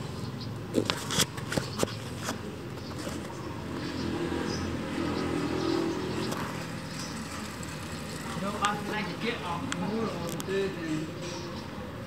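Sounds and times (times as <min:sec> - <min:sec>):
motor vehicle rumbling past: 0:02.7 - 0:10.2.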